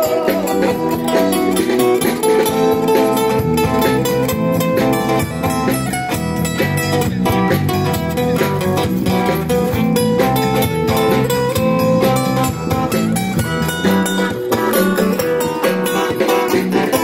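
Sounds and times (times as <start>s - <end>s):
drums: 0.0s - 17.0s
electric guitar: 0.0s - 17.0s.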